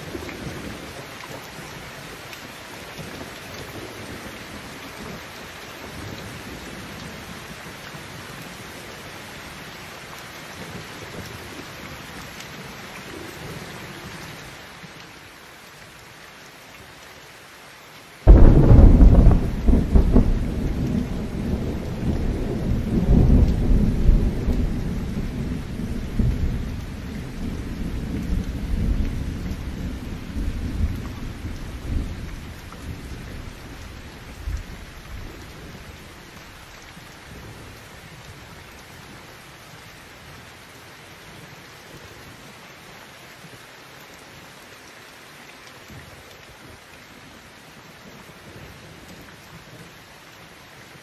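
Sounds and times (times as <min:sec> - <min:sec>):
heavy rain falling: 0:00.0 - 0:51.0
thunderclap rumbling: 0:18.2 - 0:35.4.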